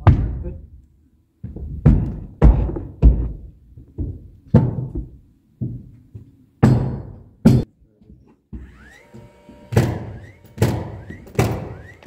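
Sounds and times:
sledgehammer thudding on plywood: 0:00.0 - 0:00.6, 0:01.4 - 0:05.8, 0:06.6 - 0:07.7, 0:09.7 - 0:11.9.

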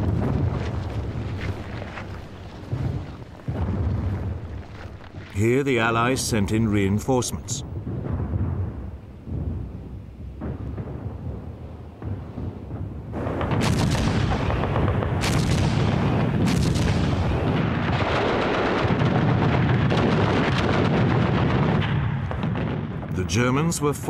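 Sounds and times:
low rumble: 0:00.0 - 0:18.0
continuous gunfire: 0:13.2 - 0:23.2.

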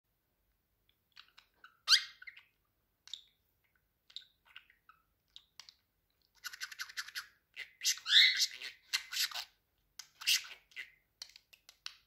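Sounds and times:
budgerigar chirping and squeaking: 0:01.1 - 0:03.4, 0:04.1 - 0:05.7, 0:06.4 - 0:11.0.

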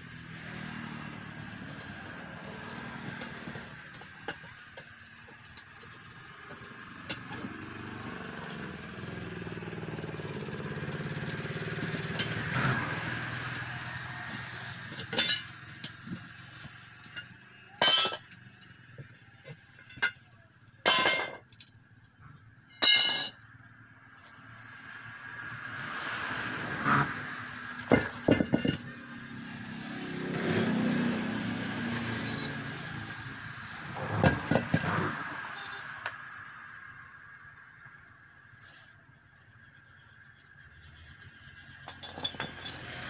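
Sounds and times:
road vehicle passing: 0:00.0 - 0:19.8, 0:23.8 - 0:43.0
steel tools clanging on wheel rim: 0:01.7 - 0:09.2, 0:10.2 - 0:21.7, 0:22.7 - 0:23.6, 0:27.8 - 0:29.0, 0:41.8 - 0:43.0.

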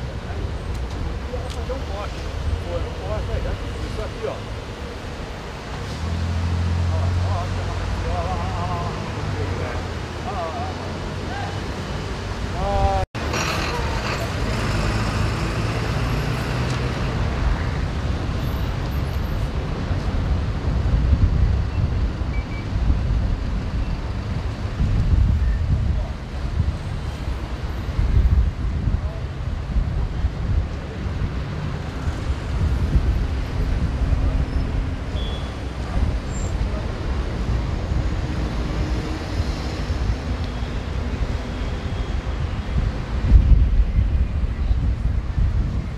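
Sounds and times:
road traffic passing: 0:00.0 - 0:45.9
wind rumble on microphone: 0:16.8 - 0:45.9.

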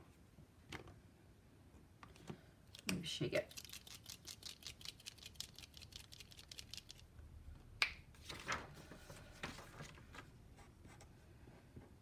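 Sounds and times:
paint pen ball rattling: 0:02.7 - 0:07.0.

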